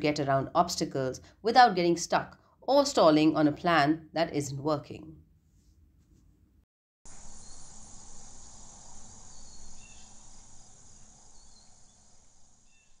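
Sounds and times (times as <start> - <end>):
insects shrilling: 7.1 - 13.0.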